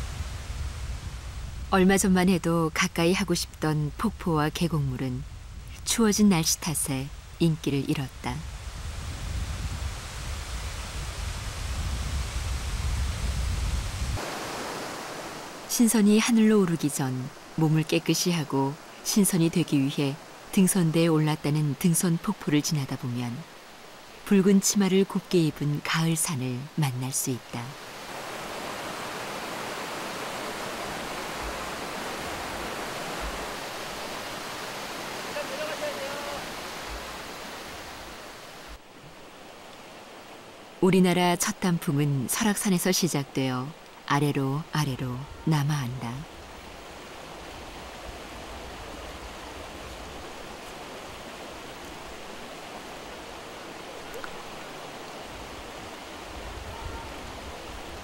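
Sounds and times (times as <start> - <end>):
water rushing over rocks: 14.2 - 20.6, 27.7 - 40.8, 46.2 - 58.0.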